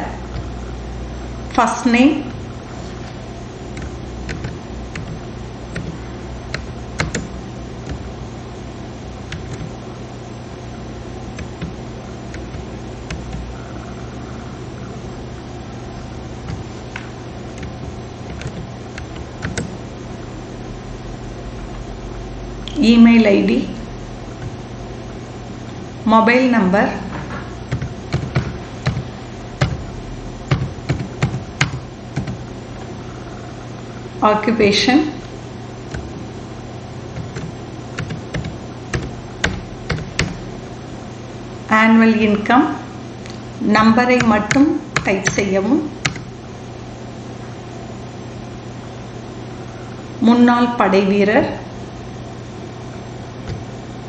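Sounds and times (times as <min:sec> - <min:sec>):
steady low hum: 0:00.0 - 0:54.0
computer keyboard keys clicking: 0:03.8 - 0:08.1, 0:09.3 - 0:09.8, 0:11.4 - 0:13.6, 0:16.5 - 0:19.8, 0:27.7 - 0:29.0, 0:29.6 - 0:29.9, 0:30.5 - 0:32.5, 0:35.9 - 0:36.2, 0:37.2 - 0:40.5, 0:46.0 - 0:46.3.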